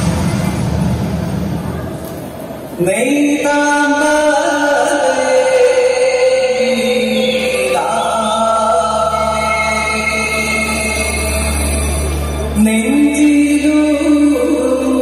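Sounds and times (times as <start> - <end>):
low drone: 0.0 - 2.8
dance music: 0.0 - 4.2.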